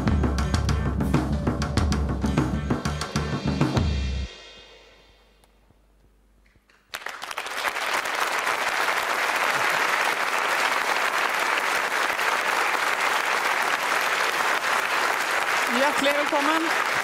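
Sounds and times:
studio audience applauding: 6.7 - 17.0.

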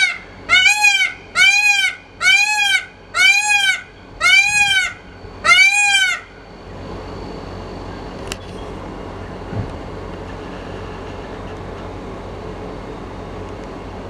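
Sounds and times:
peacock calling: 0.0 - 6.4.

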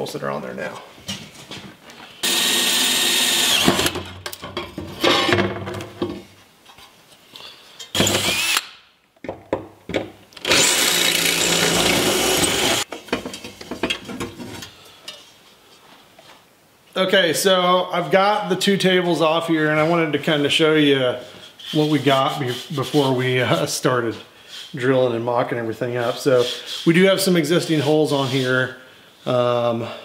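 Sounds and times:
cordless drill motor whining: 2.2 - 4.0, 8.0 - 8.6, 10.4 - 12.8.

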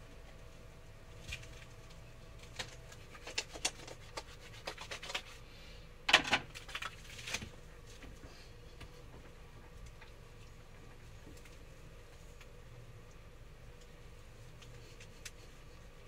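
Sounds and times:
hands rubbing soap lather: 2.5 - 5.4.

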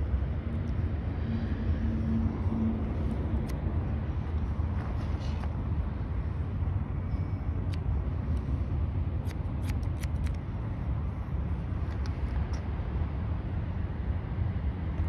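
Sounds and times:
steady low rumble: 0.0 - 15.0
scissors snipping hair: 3.2 - 3.6, 9.2 - 10.4.

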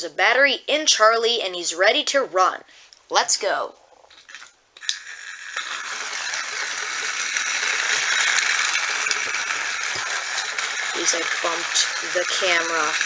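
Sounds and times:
toy train motor whirring: 4.2 - 13.0
wheels rattling on plastic track: 4.3 - 13.0.

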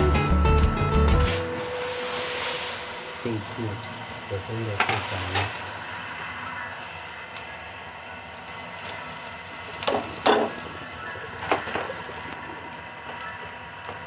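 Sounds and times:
onions sizzling in a frying pan: 4.8 - 12.4.

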